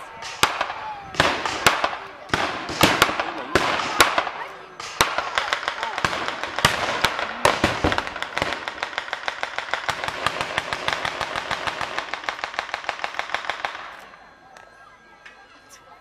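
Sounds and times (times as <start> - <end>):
firecrackers crackling: 0.0 - 15.9.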